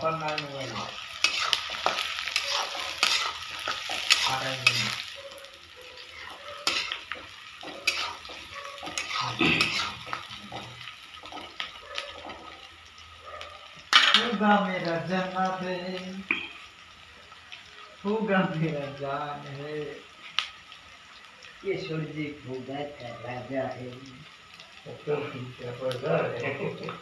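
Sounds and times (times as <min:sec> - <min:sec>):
onions sizzling in hot oil: 0:00.0 - 0:27.0
metal spatula scraping a pan: 0:00.4 - 0:05.2, 0:06.1 - 0:11.6.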